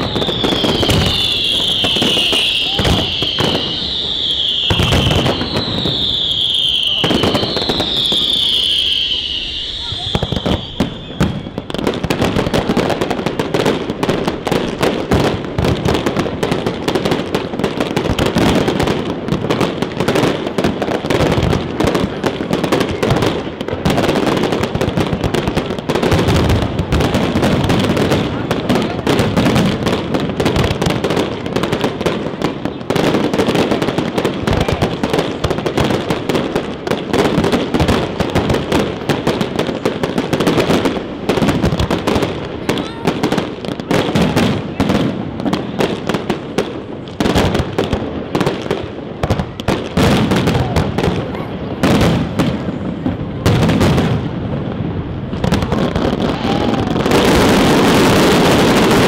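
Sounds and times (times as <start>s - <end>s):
fireworks crackling and banging: 0.0s - 59.0s.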